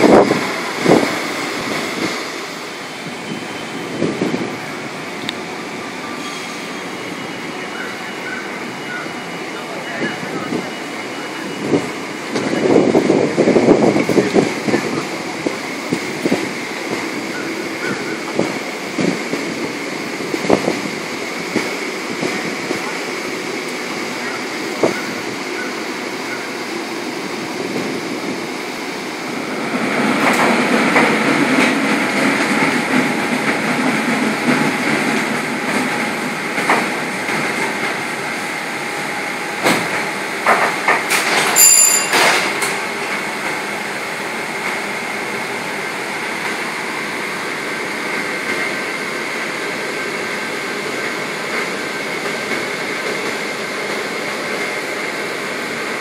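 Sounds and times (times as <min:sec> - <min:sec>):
streetcar motor and wheels hum: 0:00.0 - 0:56.0
bright bell ding: 0:41.6 - 0:42.5.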